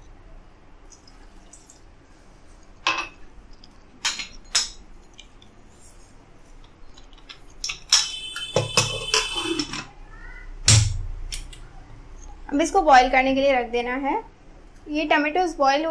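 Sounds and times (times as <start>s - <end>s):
kitchenware clattering: 2.8s - 3.2s, 4.0s - 4.9s, 7.0s - 10.0s.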